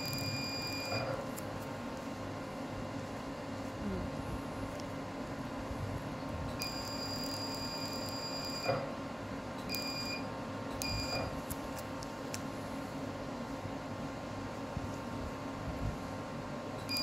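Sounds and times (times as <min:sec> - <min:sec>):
steady machine hum: 0:00.0 - 0:17.0.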